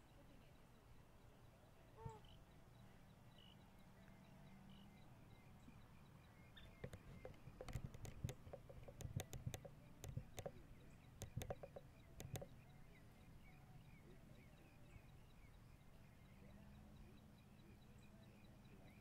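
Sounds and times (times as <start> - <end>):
sharp clicks and knocks: 6.7 - 12.6.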